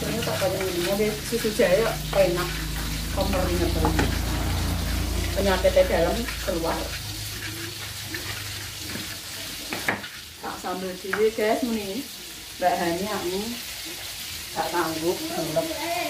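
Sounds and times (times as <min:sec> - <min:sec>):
pestle grinding in mortar: 0:00.0 - 0:10.3.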